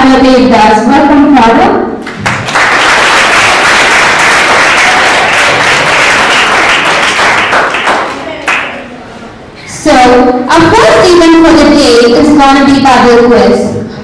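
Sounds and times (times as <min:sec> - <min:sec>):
audience applauding: 0:02.1 - 0:08.9.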